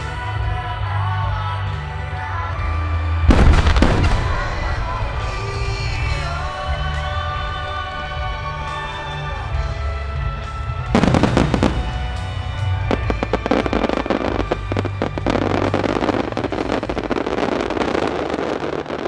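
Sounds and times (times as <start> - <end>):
music: 0.0 - 19.0
fireworks cracking and crackling: 3.2 - 9.6, 10.5 - 19.0.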